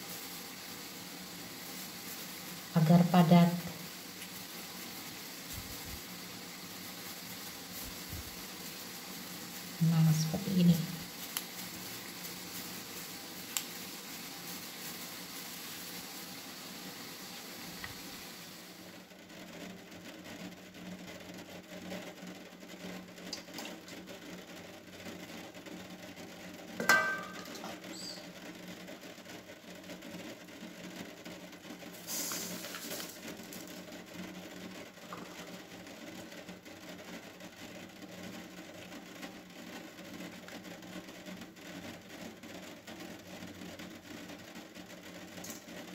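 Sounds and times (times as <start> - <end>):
pouring hiss: 0.0 - 45.9
knock on metal bowl: 26.8 - 27.6
kitchen handling sounds: 26.8 - 27.7.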